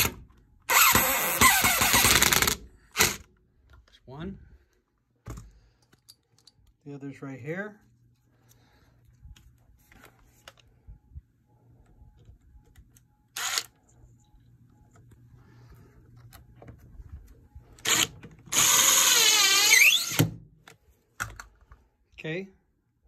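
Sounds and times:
cordless drill driving screw: 0.0s - 3.3s, 13.4s - 13.8s, 17.8s - 20.3s.

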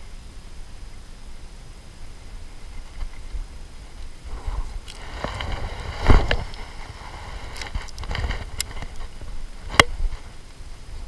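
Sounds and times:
wind rumble on microphone: 0.0s - 11.0s
fishing gear clicks and knocks: 7.4s - 9.9s.

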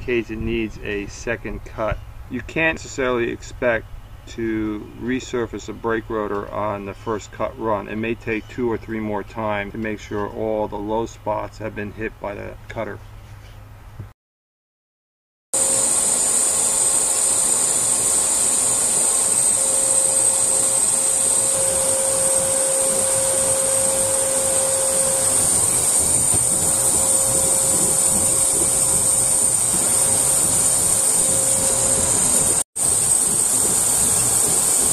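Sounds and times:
brake lathe cutting rotor: 15.6s - 34.9s.

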